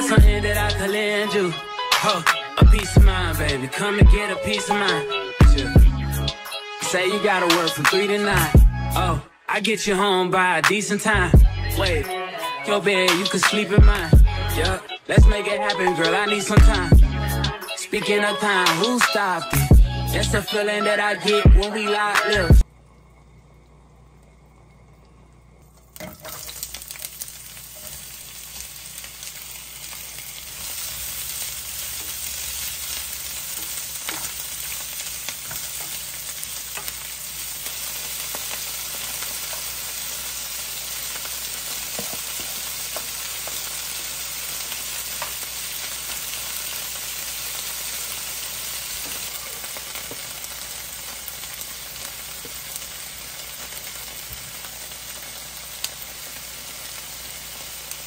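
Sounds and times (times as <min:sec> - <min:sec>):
food sizzling in frying pan: 0:00.0 - 0:01.2, 0:25.6 - 0:58.0.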